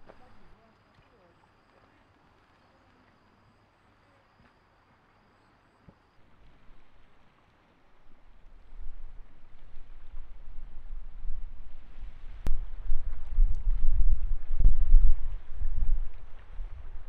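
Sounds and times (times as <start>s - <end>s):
wind buffeting microphone: 8.1s - 17.0s.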